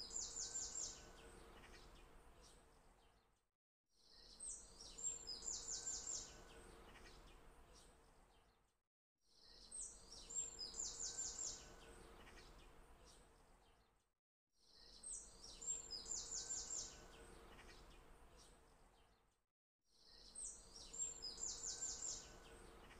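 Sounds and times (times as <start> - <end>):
birds chirping and trilling: 14.8 - 18.0, 20.0 - 22.9.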